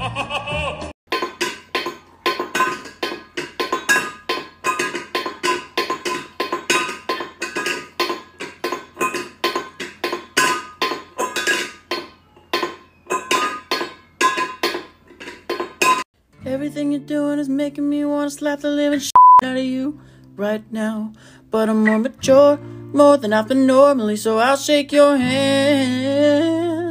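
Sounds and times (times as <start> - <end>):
cat licking metal bowl clinking: 1.1 - 12.0.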